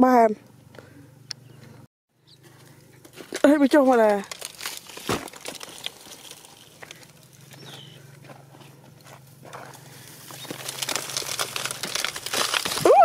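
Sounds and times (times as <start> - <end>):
scuffs and crackles on dry straw: 2.7 - 13.0.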